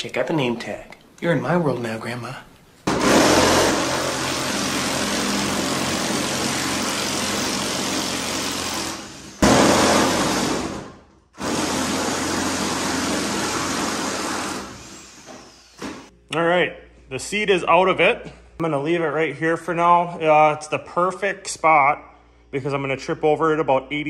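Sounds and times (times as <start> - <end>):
handheld power tool whirring: 2.9 - 10.8, 11.4 - 16.1.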